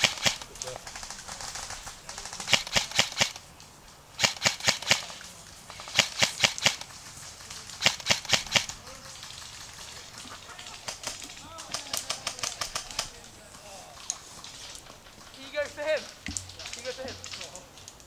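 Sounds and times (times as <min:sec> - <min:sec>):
airsoft rifle shots: 0:00.0 - 0:03.5, 0:04.2 - 0:06.9, 0:07.7 - 0:09.0, 0:10.6 - 0:13.2.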